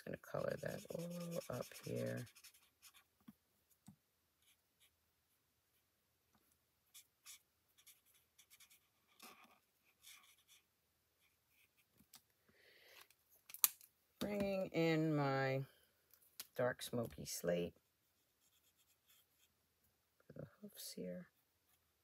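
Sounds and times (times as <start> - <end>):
marker scratching on cardstock: 0.5 - 3.1, 7.0 - 10.6.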